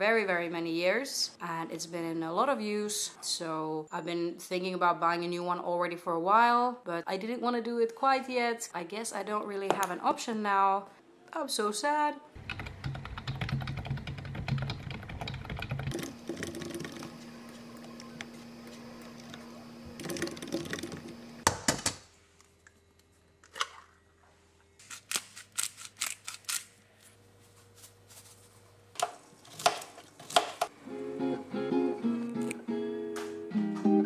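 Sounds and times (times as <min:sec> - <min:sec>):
typing on computer keyboard: 0:12.4 - 0:15.9
steady low hum: 0:15.9 - 0:21.4.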